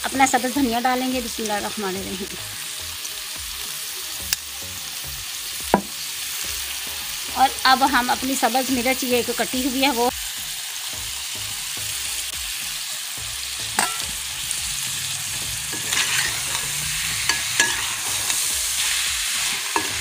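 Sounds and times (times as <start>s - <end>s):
potatoes and eggs sizzling in a pot: 0.0s - 20.0s
metal spoon scraping a pot: 15.7s - 20.0s.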